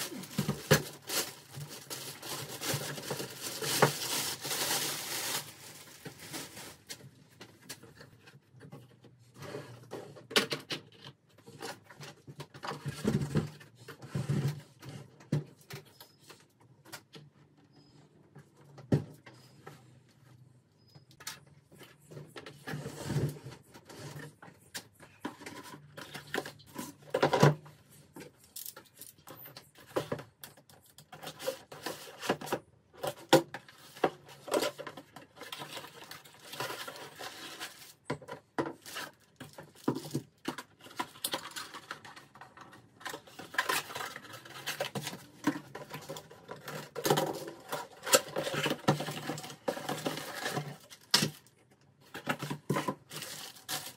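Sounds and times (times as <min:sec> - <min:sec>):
cardboard and plastic rustling: 0:00.0 - 0:17.2, 0:21.6 - 0:53.9.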